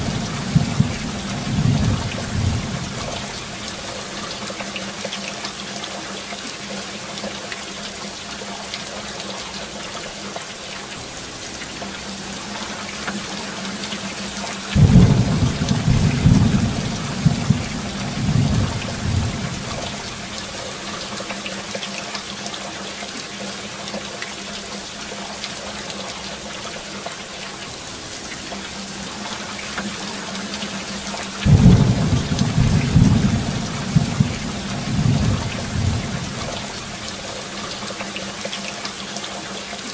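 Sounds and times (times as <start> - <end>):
thunder rumbling: 0.0 - 3.6, 14.8 - 20.4, 31.4 - 37.1
heavy rain: 0.0 - 39.9.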